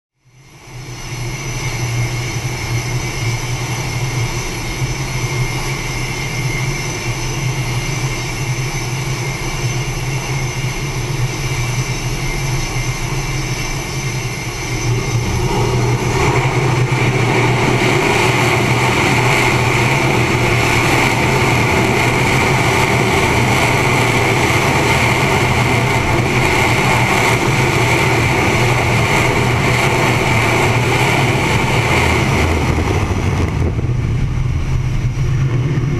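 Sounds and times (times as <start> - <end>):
jet engines rumbling with high whine: 0.2 - 35.9.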